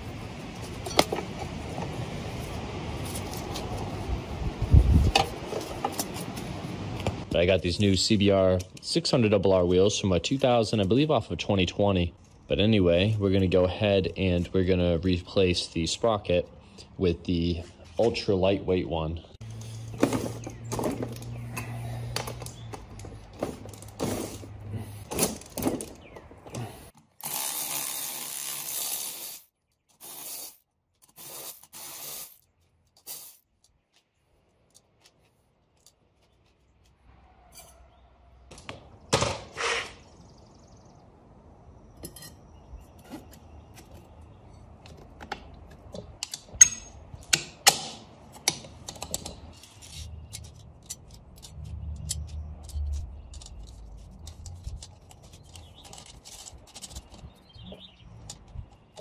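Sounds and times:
metal clinks and clanks: 42.0s - 42.5s
socket tools clicking: 44.9s - 57.4s.

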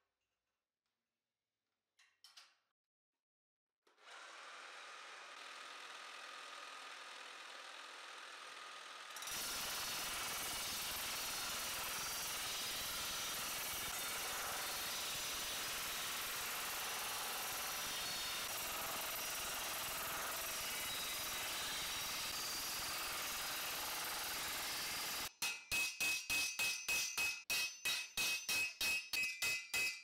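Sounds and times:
power hammer hammering steel: 9.2s - 30.0s.

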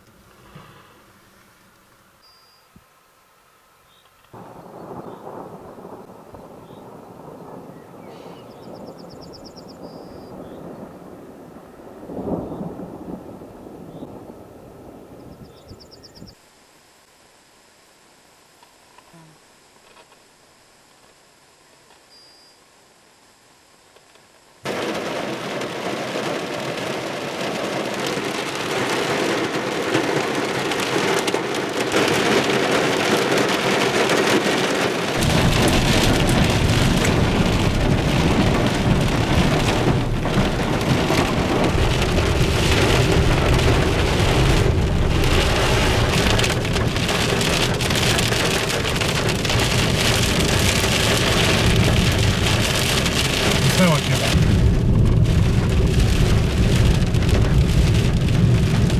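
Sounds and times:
heavy rain on car: 4.4s - 10.8s, 12.0s - 14.2s, 24.6s - 58.9s
steady low rumble: 35.2s - 58.9s.

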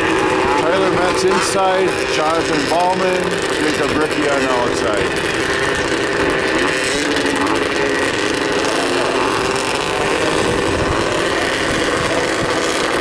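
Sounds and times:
snowmobile engines idling: 0.0s - 13.0s.

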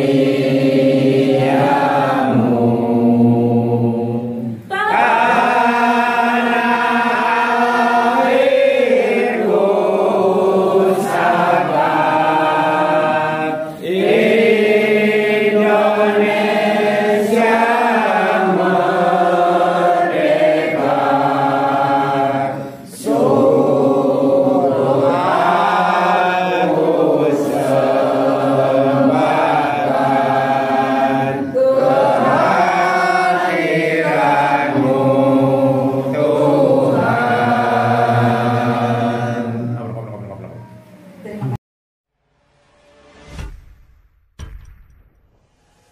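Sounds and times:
group of people singing: 0.0s - 41.6s.

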